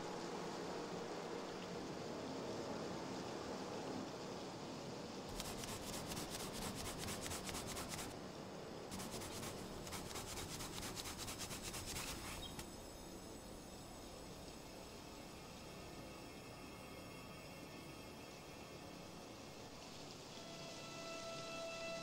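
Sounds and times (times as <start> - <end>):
eraser rubbing on paper: 5.3 - 8.1, 8.9 - 12.6.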